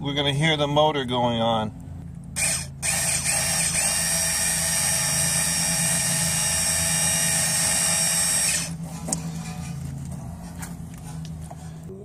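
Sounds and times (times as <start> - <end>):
electric motor whirring with whine: 2.4 - 10.6.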